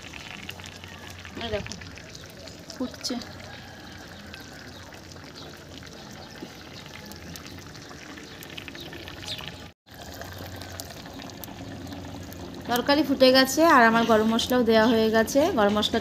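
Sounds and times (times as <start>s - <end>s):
curry bubbling and popping: 0.0s - 16.0s.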